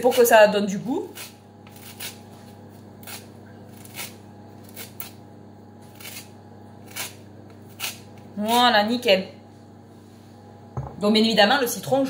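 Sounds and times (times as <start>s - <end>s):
lemon peel scraped on metal grater: 0.0s - 5.2s, 5.8s - 8.8s
steady low hum: 0.0s - 12.0s.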